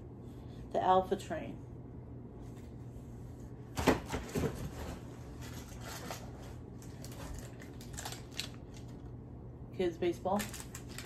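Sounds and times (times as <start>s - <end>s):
rustling through box of toys: 4.3s - 9.0s, 10.4s - 11.0s.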